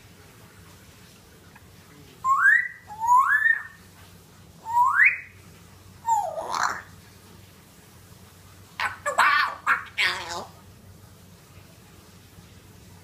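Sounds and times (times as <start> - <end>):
parrot whistling: 2.2 - 3.8, 4.6 - 5.4, 6.0 - 6.9
parrot rough call: 6.1 - 6.9.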